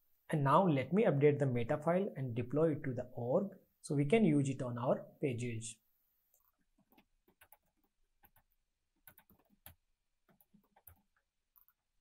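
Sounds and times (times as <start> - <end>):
computer keyboard keystrokes: 6.9 - 11.8.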